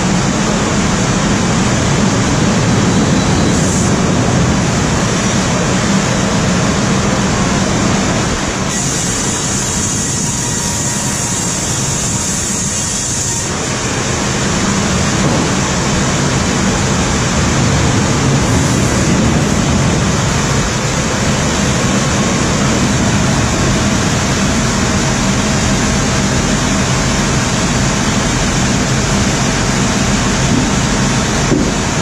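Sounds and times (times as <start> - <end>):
sawmill machinery din: 0.0 - 32.0
low hum: 13.5 - 32.0.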